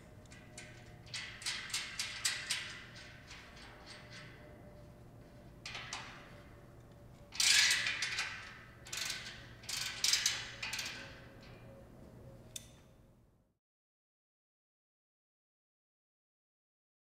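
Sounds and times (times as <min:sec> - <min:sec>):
ratchet spanner clicking: 0:08.8 - 0:10.9.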